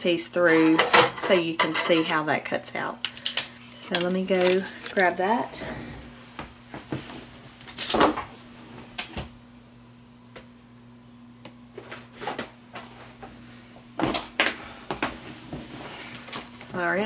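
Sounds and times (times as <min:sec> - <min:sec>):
steady low hum: 0:01.7 - 0:17.0.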